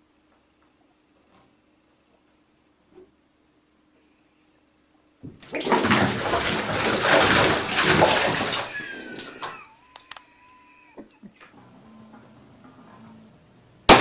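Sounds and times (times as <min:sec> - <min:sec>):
cat splashing in bathtub water: 0:05.3 - 0:09.6.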